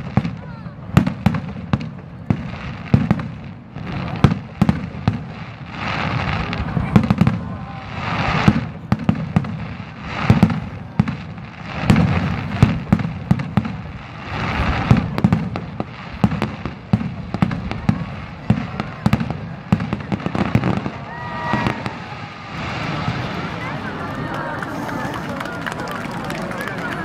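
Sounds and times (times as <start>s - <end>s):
firework crackling and hissing: 0.0s - 27.0s
whistling fireworks: 0.0s - 27.0s.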